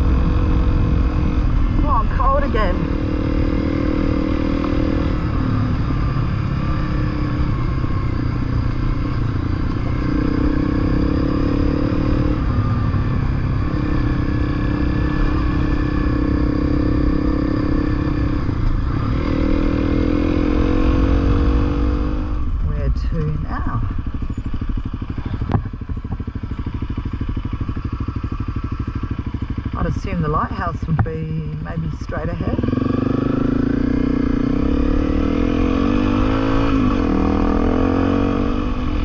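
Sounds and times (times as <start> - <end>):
motorcycle engine running: 0.0 - 39.0.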